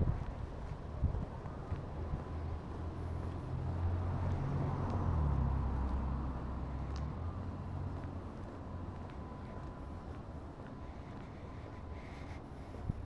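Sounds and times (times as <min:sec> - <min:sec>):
vehicle driving past: 0:02.0 - 0:11.8.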